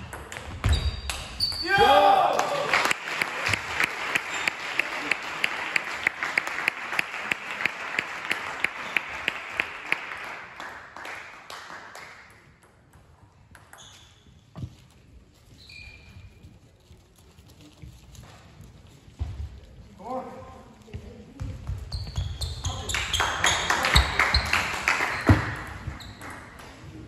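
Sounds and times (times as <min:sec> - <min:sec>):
spectators applauding: 0:02.2 - 0:12.3, 0:22.9 - 0:26.5.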